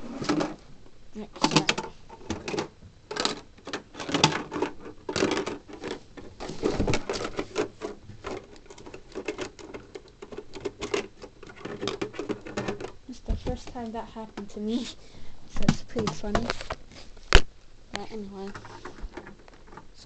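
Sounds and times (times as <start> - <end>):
plastic parts clicking and rattling: 0.1 - 0.6, 1.4 - 14.5, 18.4 - 20.0
rustling: 3.2 - 13.0.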